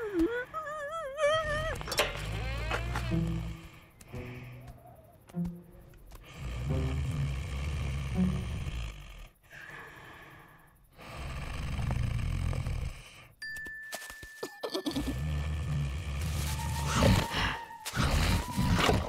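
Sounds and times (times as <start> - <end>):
cartoon bull snoring: 6.2 - 9.6, 11.0 - 13.3, 14.9 - 16.5.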